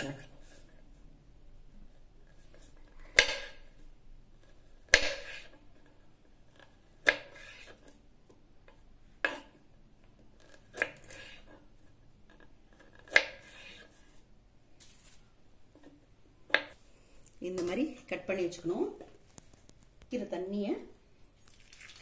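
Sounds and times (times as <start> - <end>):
knife chopping on wooden board: 3.2 - 3.6, 4.9 - 5.5, 7.0 - 7.8, 9.2 - 9.6, 12.9 - 13.9.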